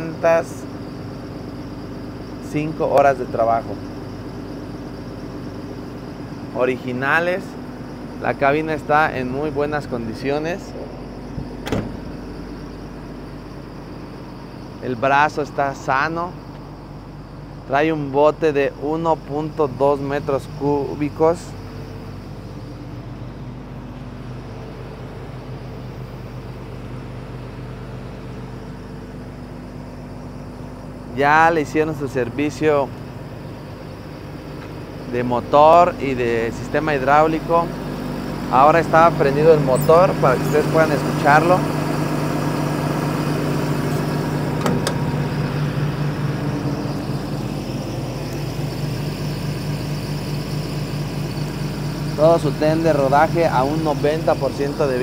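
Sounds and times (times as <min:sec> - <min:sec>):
diesel engine idling: 0:00.0 - 0:55.0.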